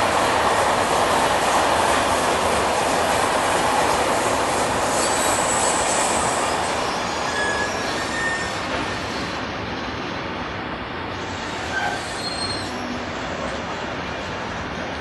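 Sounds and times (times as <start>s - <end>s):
freight train wheels rumbling on track: 0.0s - 15.0s
thin wheel squeals: 4.9s - 9.3s, 11.6s - 12.8s.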